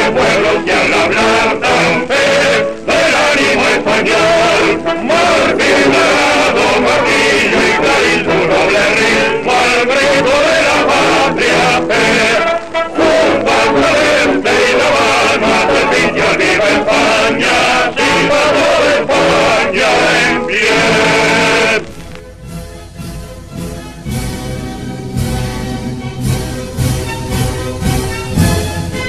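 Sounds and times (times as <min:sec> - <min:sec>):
male choir singing anthem: 0:00.0 - 0:21.9
musical accompaniment: 0:00.0 - 0:29.0.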